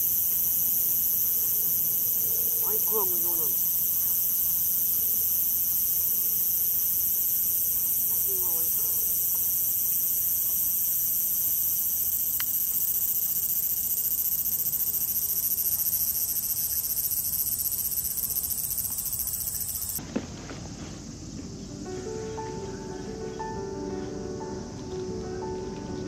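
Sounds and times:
cicadas buzzing: 0.0s - 20.0s.

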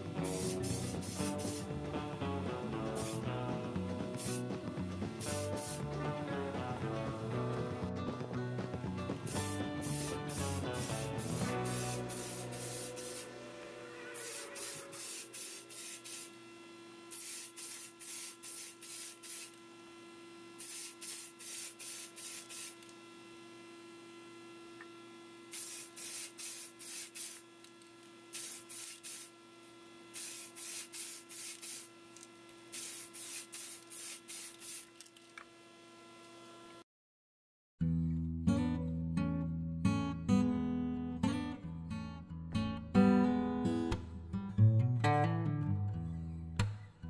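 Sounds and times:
spray paint hissing: 0.2s - 1.7s, 2.9s - 3.2s, 4.1s - 4.5s, 5.2s - 5.9s, 9.2s - 13.4s, 14.0s - 16.4s, 17.1s - 19.6s, 20.6s - 22.9s, 25.5s - 27.4s, 28.3s - 29.3s, 30.1s - 31.9s, 32.7s - 35.0s.

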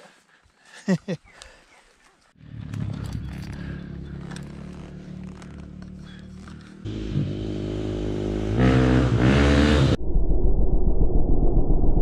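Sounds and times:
dirt bike engine revving: 2.4s - 10.0s.

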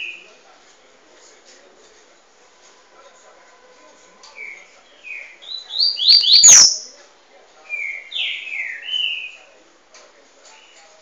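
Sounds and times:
bird singing whistled notes: 4.4s - 6.9s, 7.7s - 9.5s.

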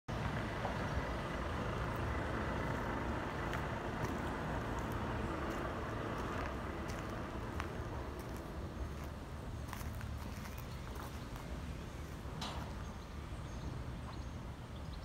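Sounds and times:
diesel engine idling: 0.1s - 14.9s.

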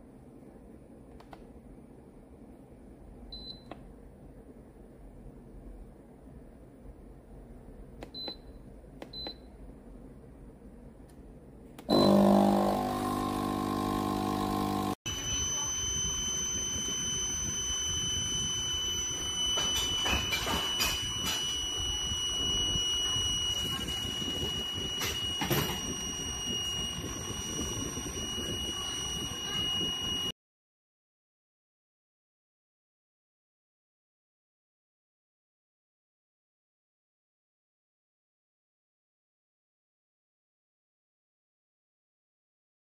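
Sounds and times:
clicks: 1.1s - 1.5s
short button beeps: 8.0s - 9.5s
high steady whine: 11.8s - 30.3s
coffee machine pump buzzing: 11.9s - 30.3s.

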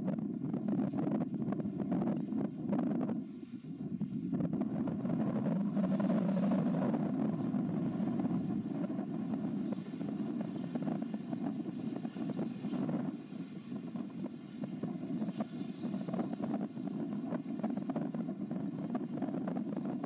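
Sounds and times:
tugboat engine rumble: 0.0s - 20.0s
wind buffeting microphone: 0.0s - 20.0s.

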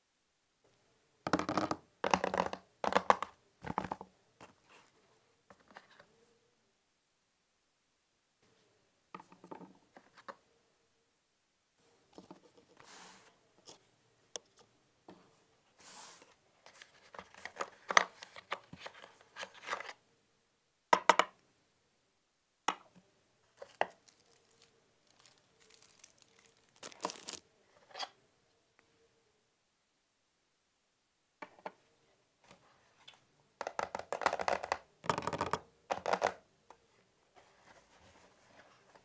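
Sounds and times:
plastic wrap crinkling and tearing: 23.6s - 27.4s.

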